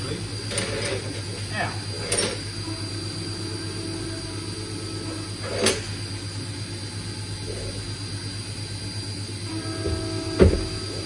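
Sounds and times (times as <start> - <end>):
steady low hum: 0.0 - 11.0
soft thud: 9.8 - 10.8
sharp knock on bench: 10.4 - 10.7.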